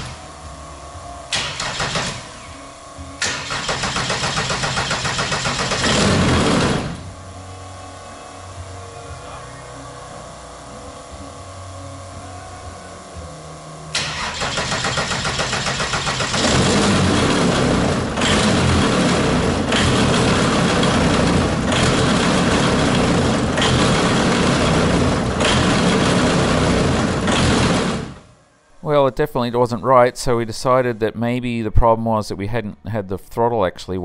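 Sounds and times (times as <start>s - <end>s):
aircraft engine cranking and running unevenly: 1.3s - 7.2s, 13.9s - 28.3s.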